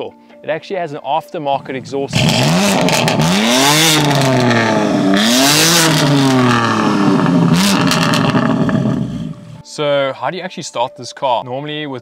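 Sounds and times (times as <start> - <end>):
car engine revving: 1.6 - 9.6
rush of exhaust noise: 1.6 - 9.6.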